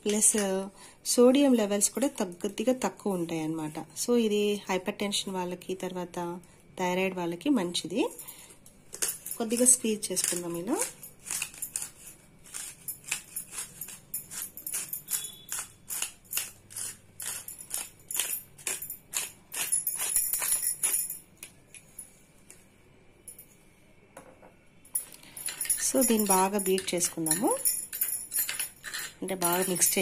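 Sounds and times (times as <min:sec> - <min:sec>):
salt grinder crunching: 0:09.0 - 0:20.6.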